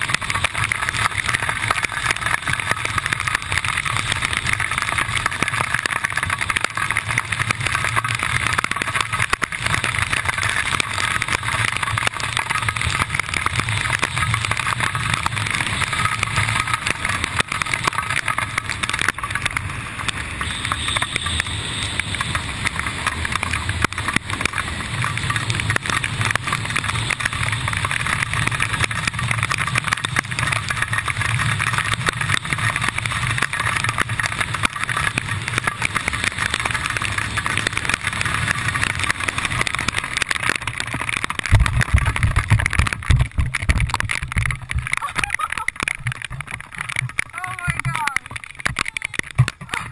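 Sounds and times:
wind rushing over camera: 22.6s - 49.9s.

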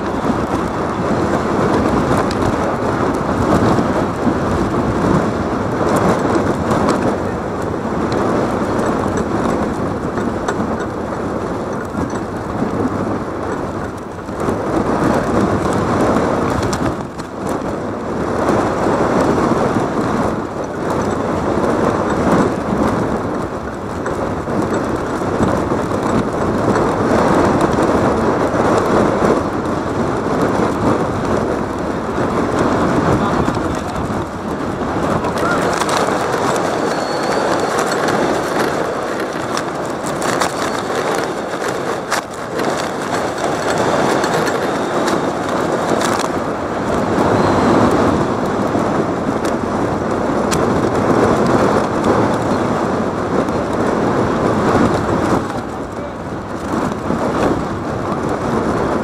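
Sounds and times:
crowd hubbub: 32.6s - 48.4s
brief high squeaks: 36.6s - 38.1s.

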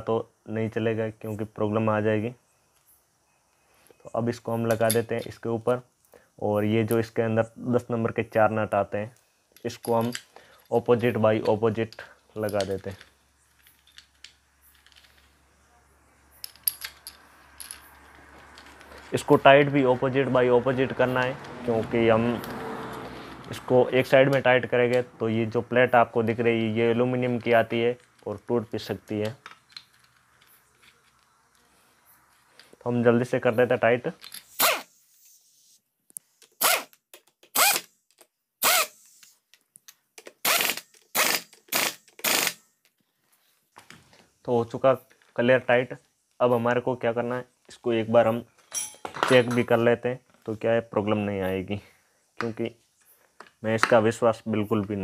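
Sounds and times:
metal nuts clinking: 4.5s - 5.4s, 9.5s - 15.5s, 16.3s - 19.9s, 26.2s - 31.3s, 34.1s - 34.8s, 48.5s - 49.9s
ratchet wrench clicking: 38.6s - 39.3s, 40.2s - 42.6s.

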